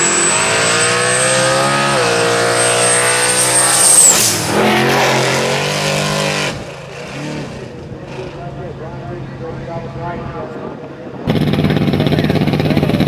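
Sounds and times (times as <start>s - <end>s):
high whine: 0.0s - 6.9s
engines at full throttle: 0.0s - 13.0s.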